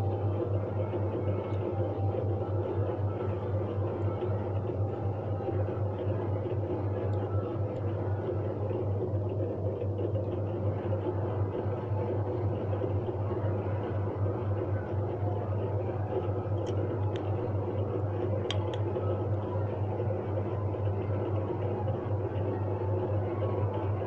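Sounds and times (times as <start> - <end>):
low electrical hum: 0.0 - 24.0
plastic timer clicks: 18.4 - 18.9.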